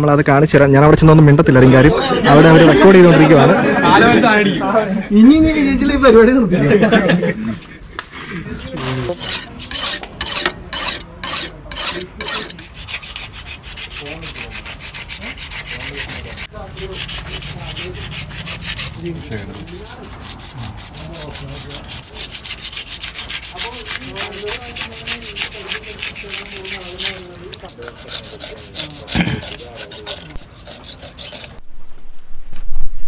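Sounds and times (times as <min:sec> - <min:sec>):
knife scraping fish scales: 0:09.1 - 0:31.6.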